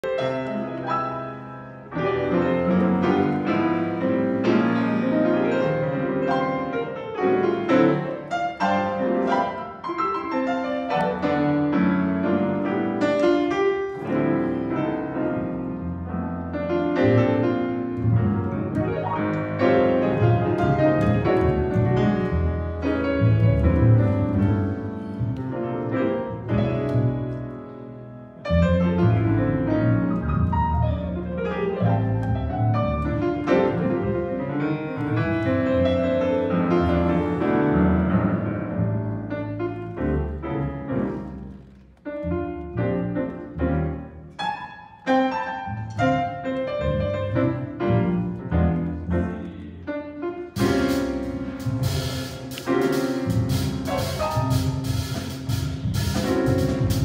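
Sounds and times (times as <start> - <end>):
grand piano: 0.0 - 57.0
drums: 50.6 - 57.0
upright bass: 50.6 - 57.0.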